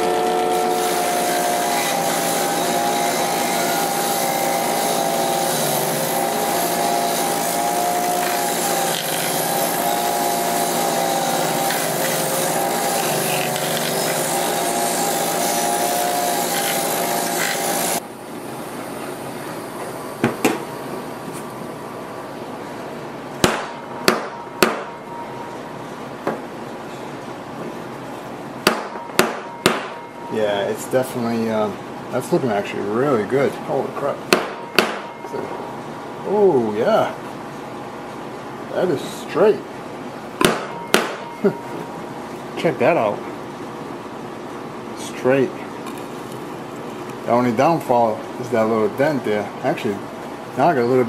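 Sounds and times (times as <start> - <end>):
bench grinder grinding blade: 0.0 - 18.0
sharp metal knocks: 23.4 - 25.0, 28.6 - 30.1, 34.3 - 35.3, 40.4 - 41.4.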